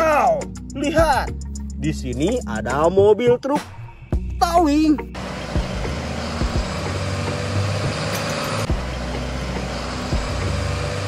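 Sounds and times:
truck engine driving by: 5.1 - 11.0.

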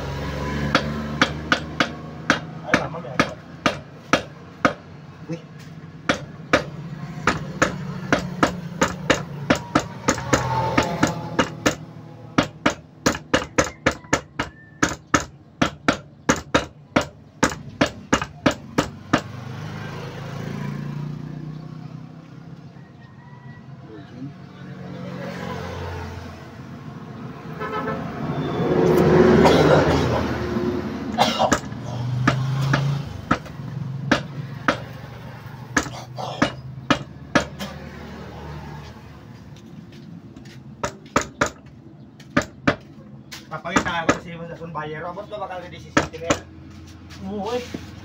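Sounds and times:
hammer blows on metal engine: 0.0 - 5.0, 5.6 - 19.7, 31.1 - 38.0.

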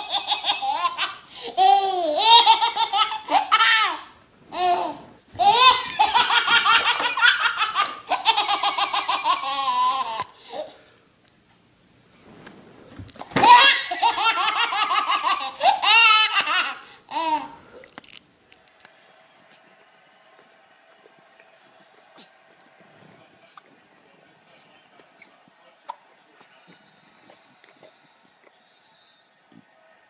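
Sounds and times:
baby laughing: 0.0 - 10.4, 13.4 - 17.6.

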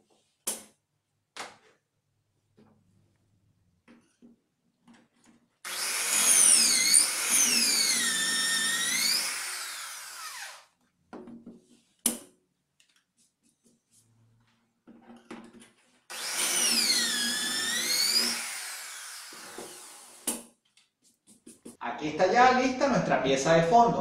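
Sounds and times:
electric drill whining: 5.7 - 10.7, 16.1 - 20.3.

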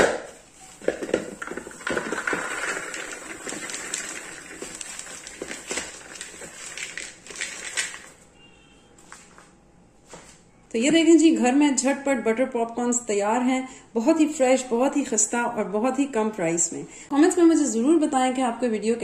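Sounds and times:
popcorn pouring into plastic bowl: 0.1 - 8.2.

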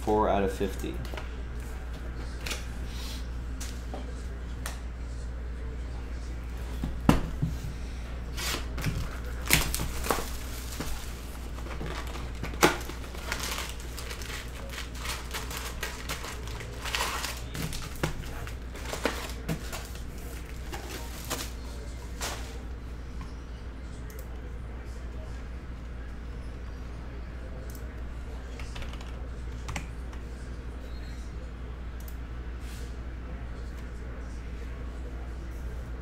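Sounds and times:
low steady hum: 0.0 - 36.0
foil packs rustling and clicking: 8.4 - 21.6
plastic wrap crinkling and tearing: 8.4 - 21.6.

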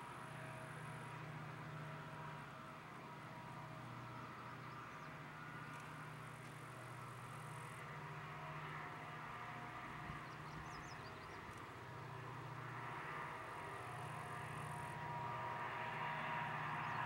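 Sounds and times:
distant diesel locomotives droning: 0.0 - 17.0.

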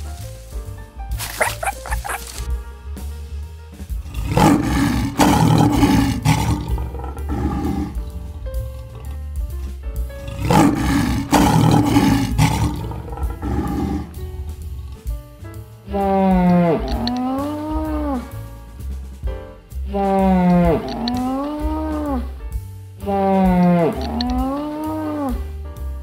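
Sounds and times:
background music: 0.0 - 26.0
lion roaring: 4.1 - 9.2, 10.2 - 15.0, 16.0 - 18.2, 20.3 - 22.2, 23.1 - 25.4.

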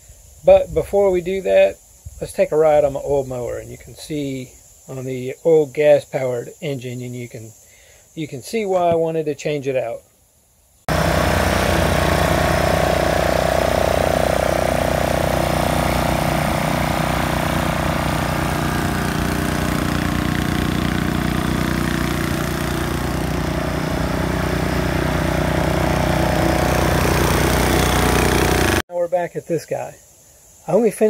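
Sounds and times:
riding mower engine running: 10.9 - 28.8.

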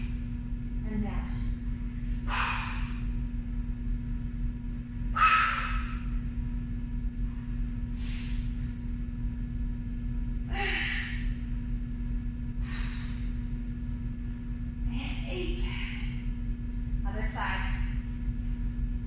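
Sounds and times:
low hum: 0.0 - 19.0
woman exhaling hard: 2.2 - 3.0, 5.2 - 6.0.

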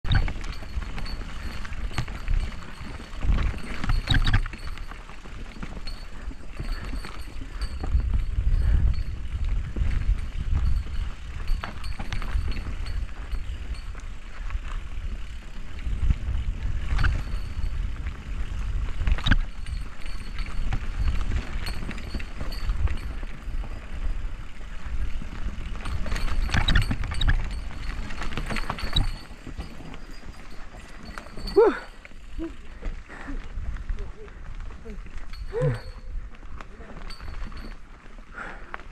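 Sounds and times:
bike rattling and knocking: 0.0 - 38.9
low rumble of bike ride: 0.0 - 38.9.

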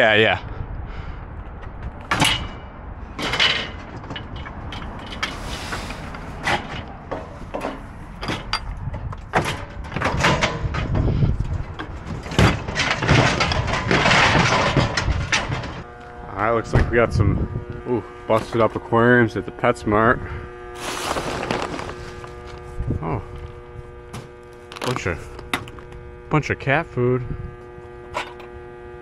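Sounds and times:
metal shelving clanking and scraping: 2.1 - 8.7, 9.3 - 15.8.

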